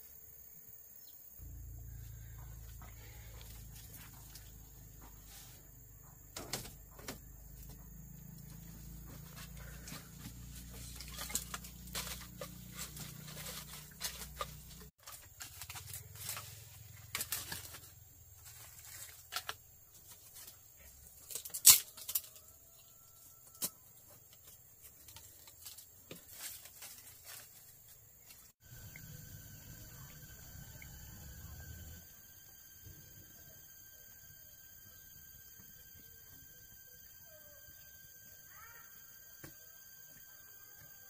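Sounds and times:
firewood and stones being shifted: 9.0 - 23.0, 24.2 - 28.6.

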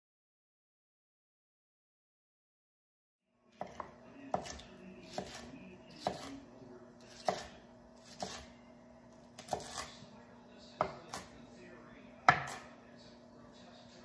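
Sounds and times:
knife chopping on wooden board: 3.6 - 6.4, 7.0 - 8.5, 9.4 - 9.9, 10.8 - 11.3, 12.2 - 12.7.

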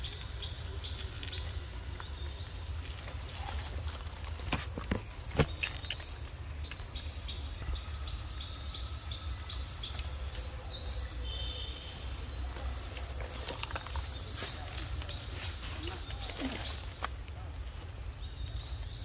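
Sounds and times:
insect buzz: 0.0 - 19.0
small birds chirping: 0.0 - 19.0.

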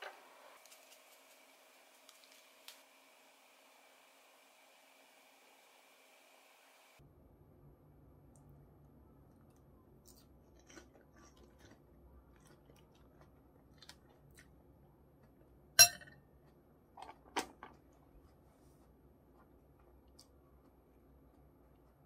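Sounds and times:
chewing salad: 9.2 - 15.6, 19.2 - 22.0.

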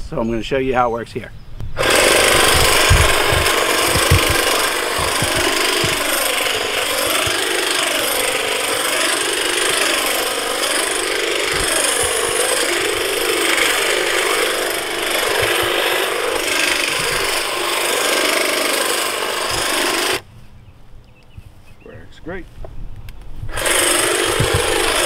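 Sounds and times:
hedge trimmer cutting branches: 1.8 - 20.2, 23.5 - 25.0.

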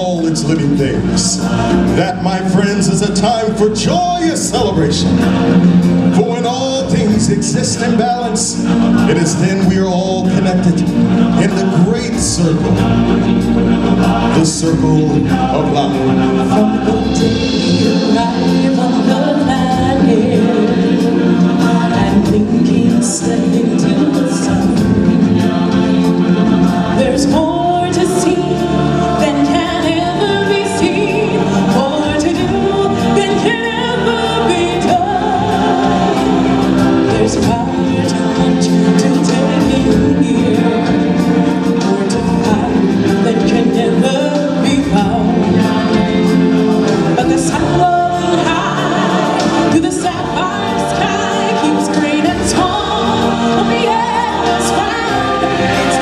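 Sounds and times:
choir singing: 0.0 - 56.0
live stage-show music: 0.0 - 56.0
woman singing into microphone: 17.4 - 25.7, 26.9 - 45.4, 47.1 - 56.0.

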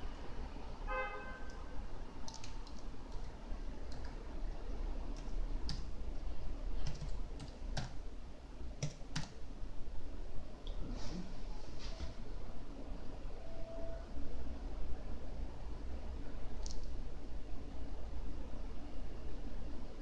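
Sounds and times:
typing on computer keyboard: 2.2 - 3.3, 3.9 - 4.2, 5.2 - 5.9, 6.8 - 8.0, 8.8 - 9.4, 16.6 - 16.9.

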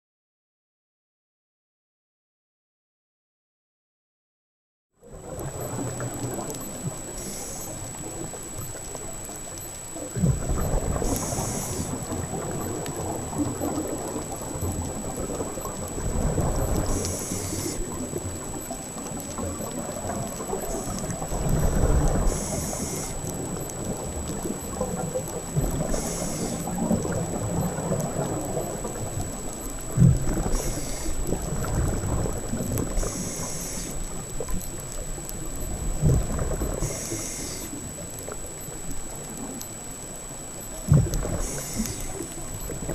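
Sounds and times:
exhaled bubbles rumbling: 5.0 - 39.6, 40.8 - 42.9
water noise: 5.0 - 42.9
high whine: 5.1 - 42.9
regulator inhale hiss: 7.1 - 7.9, 10.9 - 12.2, 16.7 - 18.1, 20.5 - 23.3, 25.6 - 27.0, 30.4 - 31.7, 32.9 - 34.2, 36.7 - 37.9, 41.2 - 42.3.

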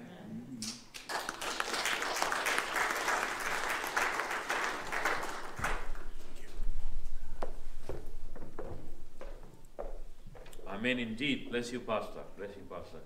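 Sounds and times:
congregation applauding: 0.7 - 6.3.

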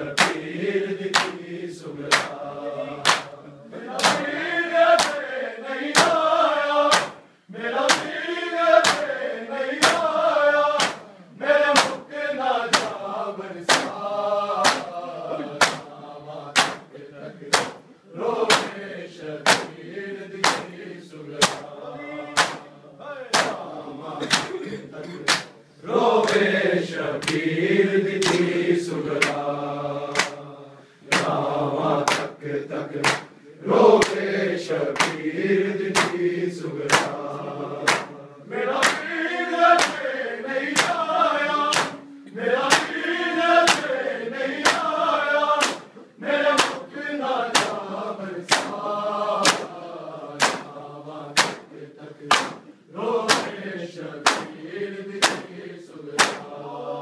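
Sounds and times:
men chanting together: 0.0 - 57.0
hands slapping chests: 0.1 - 7.2, 7.8 - 11.1, 11.7 - 13.0, 13.7 - 14.0, 14.6 - 17.8, 18.4 - 18.8, 19.4 - 21.7, 22.3 - 22.7, 23.3 - 24.6, 25.2 - 25.6, 26.2 - 26.6, 27.2 - 27.5, 28.1 - 29.5, 30.1 - 30.4, 31.0 - 33.4, 34.0 - 35.3, 35.9 - 37.2, 37.8 - 43.0, 43.6 - 49.8, 50.4 - 50.8, 51.4 - 53.6, 54.2 - 54.6, 55.2 - 56.6.

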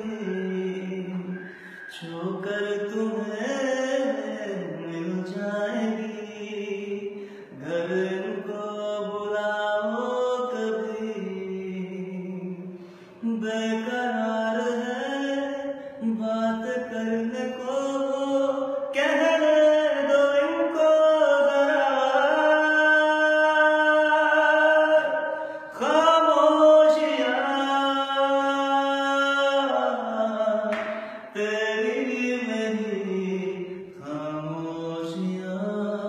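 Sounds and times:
man singing unaccompanied: 0.0 - 36.0.

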